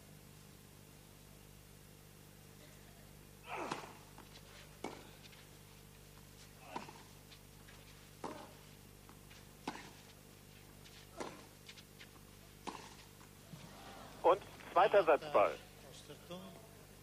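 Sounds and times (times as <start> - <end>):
tennis racquets hitting ball: 3.6 - 5.4, 6.2 - 13.3.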